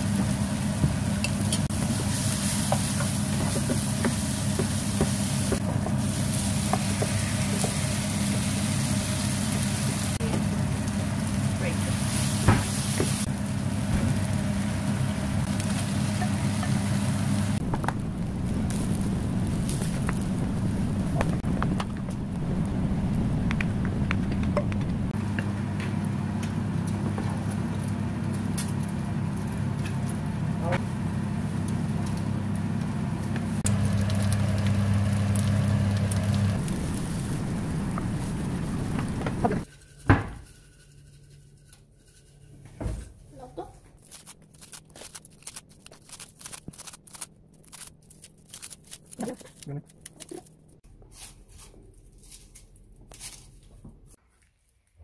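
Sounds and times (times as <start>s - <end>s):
rice sizzling in a frying pan: 0.0s - 23.6s, 30.8s - 39.7s
steady low hum: 14.4s - 25.4s, 32.6s - 39.7s.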